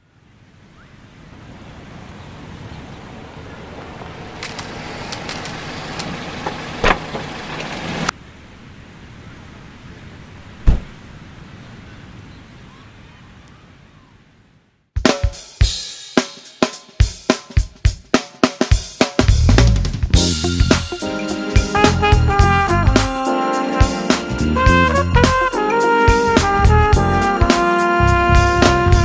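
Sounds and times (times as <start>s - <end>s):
car and street noise: 1.3s - 8.2s
car door shutting: 4.4s - 8.1s, 10.6s - 10.9s.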